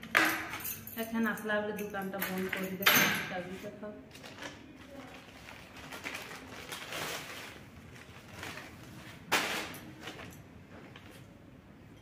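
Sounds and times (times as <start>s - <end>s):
cellophane packet crinkling: 4.1s - 10.3s
plastic bag rustling: 4.1s - 11.4s.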